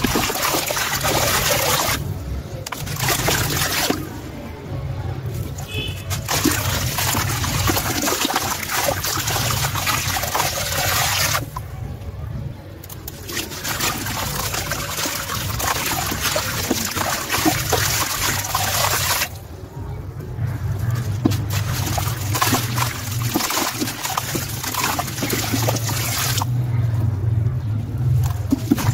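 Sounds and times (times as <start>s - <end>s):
sand pouring into water: 13.2s - 19.3s.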